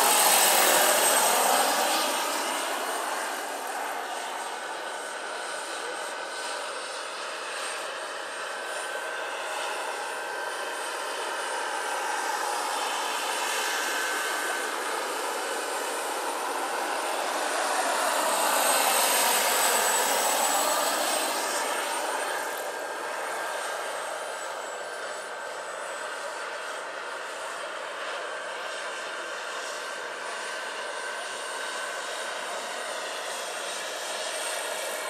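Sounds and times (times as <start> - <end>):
helicopter rotors beating: 0.0 - 27.5
model helicopter turbine whine: 0.0 - 35.0.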